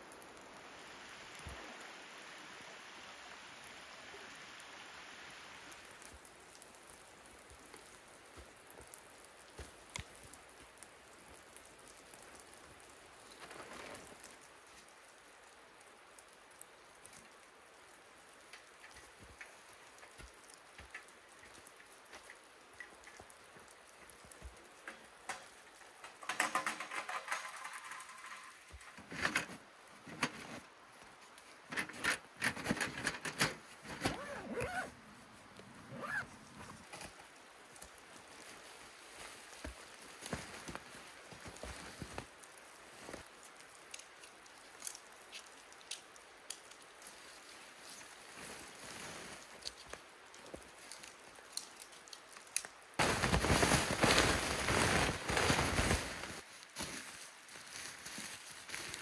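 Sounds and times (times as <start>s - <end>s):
tent fabric rustling and crinkling: 0.0s - 17.0s, 17.7s - 59.0s
soft rain patter: 0.0s - 59.0s
water drips: 5.6s - 26.3s, 37.1s - 53.0s.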